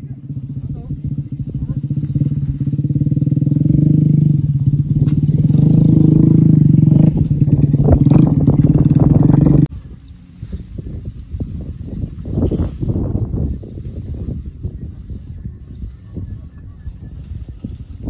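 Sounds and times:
diesel tractor engine revving: 1.3s - 9.7s.

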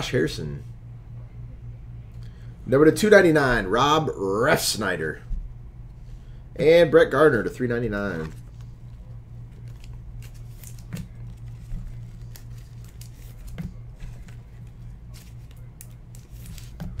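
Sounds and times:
steady low hum: 0.0s - 17.0s
trading cards sliding and flicking: 8.1s - 17.0s.

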